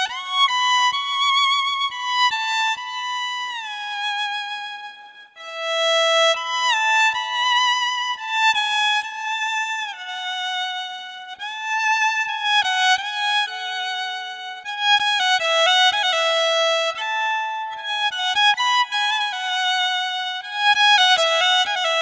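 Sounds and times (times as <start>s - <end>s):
electric violin slow melody: 0.0s - 2.6s.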